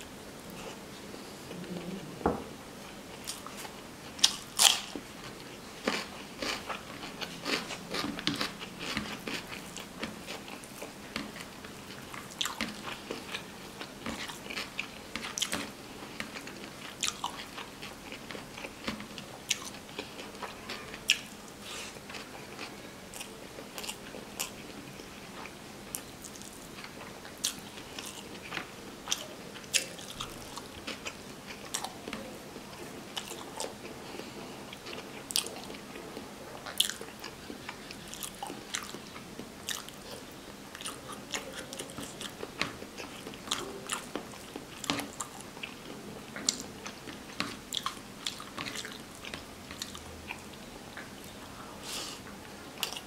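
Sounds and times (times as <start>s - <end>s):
chewing and mouth clicks: 14.0s - 21.3s, 36.6s - 51.1s.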